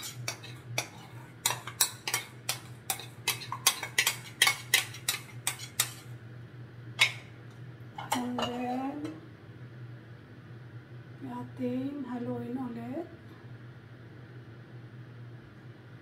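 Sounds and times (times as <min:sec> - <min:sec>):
spatula scraping ceramic bowl: 0:00.0 - 0:06.1
steady low hum: 0:00.0 - 0:16.0.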